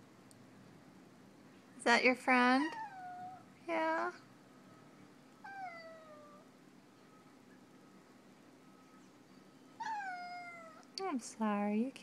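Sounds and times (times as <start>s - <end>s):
cat meowing: 2.6s - 3.5s, 5.4s - 6.5s, 9.8s - 10.9s.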